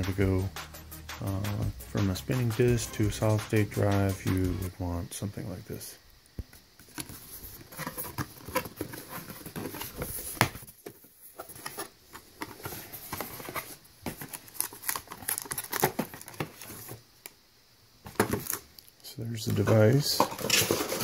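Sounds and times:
cardboard box rustling and scraping: 6.8 - 17.0
plastic wrap handled: 6.9 - 17.0.

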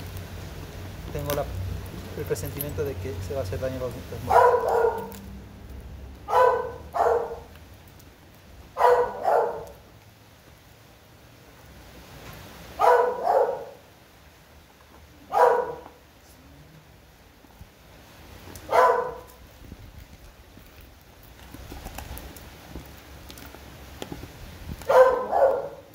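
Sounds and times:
dog barking: 4.3 - 5.2, 6.3 - 7.5, 8.8 - 9.8, 12.8 - 13.8, 15.3 - 16.0, 18.7 - 19.4, 24.9 - 25.9.

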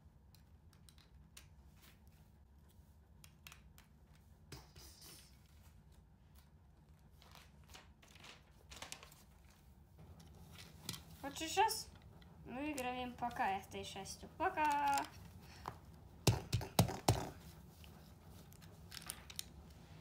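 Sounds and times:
paper rustle: 6.8 - 9.7
plastic bricks clicking together: 14.6 - 15.2.

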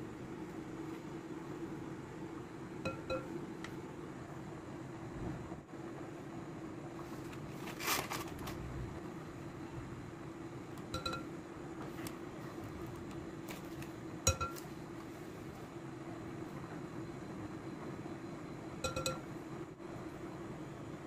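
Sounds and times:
steady low hum: 0.0 - 21.0
wooden spoon clinking glass bowl: 14.3 - 14.6, 18.9 - 19.2.

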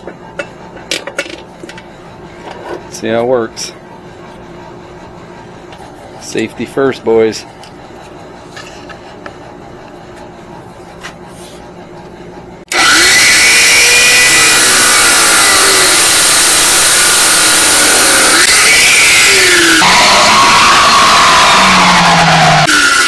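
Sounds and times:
cutoff saw grinding metal: 12.7 - 23.0.

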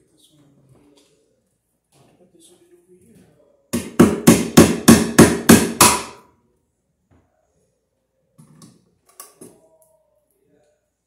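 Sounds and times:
hammer striking steel box: 3.8 - 6.2.

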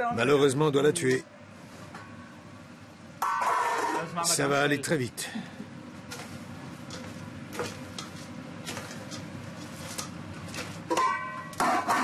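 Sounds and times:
kitchen hum: 0.0 - 12.0
pots and utensils clinking: 9.9 - 12.0.

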